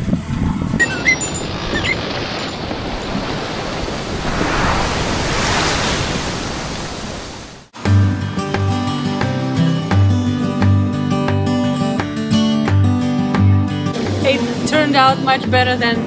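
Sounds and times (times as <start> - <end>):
ocean surf rushing: 0.8 - 8.0
acoustic guitar music: 7.8 - 16.0.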